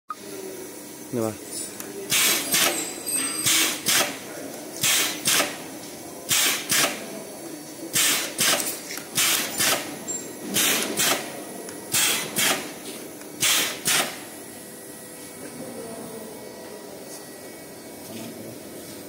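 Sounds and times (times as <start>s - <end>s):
spot welding bursts: 4.8s - 5.6s, 13.4s - 14.3s.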